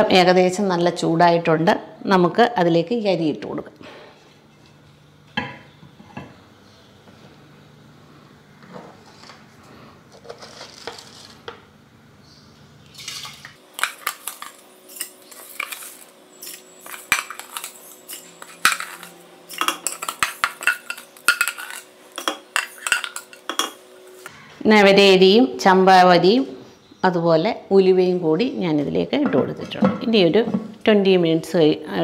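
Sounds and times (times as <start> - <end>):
utensil clattering against bowl and pot: 13.0 - 23.8.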